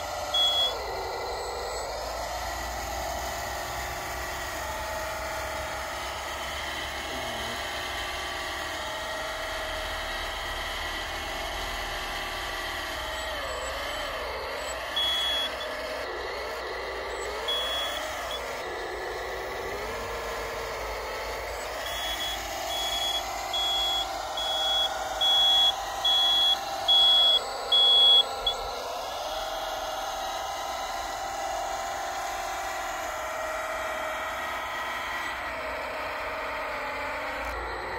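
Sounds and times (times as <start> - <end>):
toy loader motor whining: 0.0 - 37.9
reversing alarm beeps: 0.2 - 2.2, 13.1 - 16.0, 17.1 - 18.6, 21.0 - 29.1.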